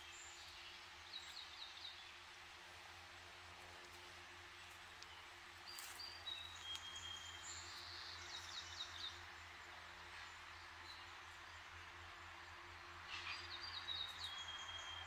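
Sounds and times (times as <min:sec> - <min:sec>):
distant road traffic hum: 0:00.0 - 0:15.0
songbirds singing: 0:00.0 - 0:15.0.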